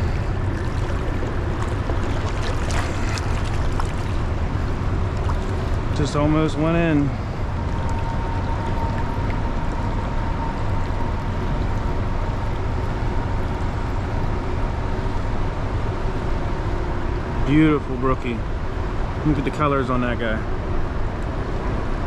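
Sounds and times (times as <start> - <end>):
river water rushing over rocks: 0.0 - 6.0.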